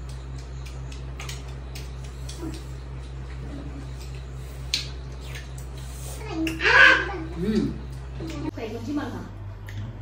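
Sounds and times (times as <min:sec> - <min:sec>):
mouth smacks and clicks: 0:00.0 - 0:03.4.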